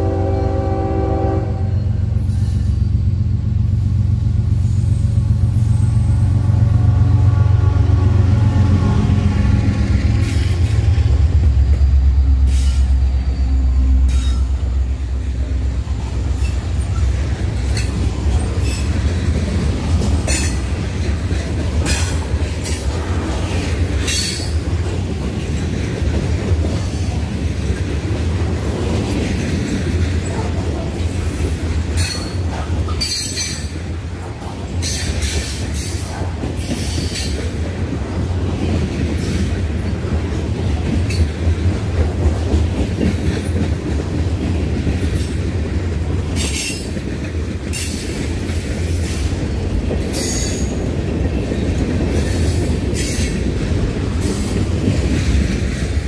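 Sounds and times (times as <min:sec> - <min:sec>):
train wheels rumbling on rail: 0:00.0 - 0:56.0.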